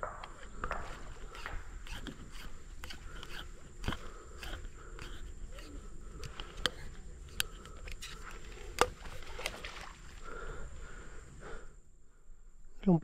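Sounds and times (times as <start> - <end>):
sharp clicks: 0.0 - 9.0
leaves and branches rustling: 0.0 - 11.4
high insect drone: 0.0 - 12.8.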